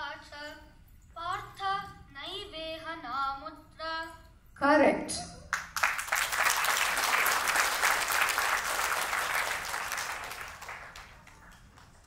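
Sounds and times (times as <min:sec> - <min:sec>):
audience clapping: 0:05.5 - 0:12.0.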